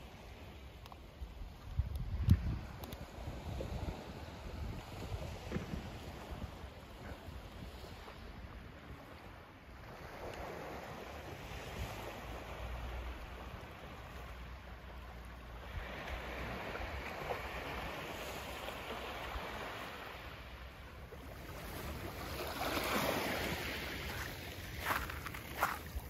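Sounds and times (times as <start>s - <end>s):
wind rumble on microphone: 1.2s - 14.4s
waves washing onto pebbles: 15.5s - 20.6s, 21.2s - 26.0s.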